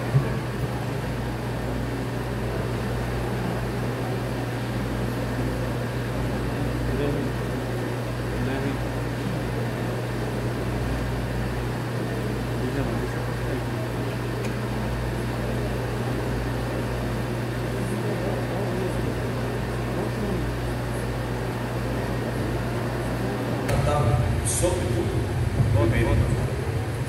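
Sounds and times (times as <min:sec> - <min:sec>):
low electrical hum: 0:00.0 - 0:27.0
deep rumble: 0:23.7 - 0:27.0.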